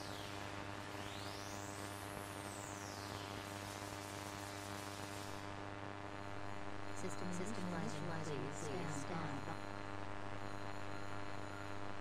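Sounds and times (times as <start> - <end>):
electronic hum: 0.0 - 12.0
static hiss: 0.0 - 12.0.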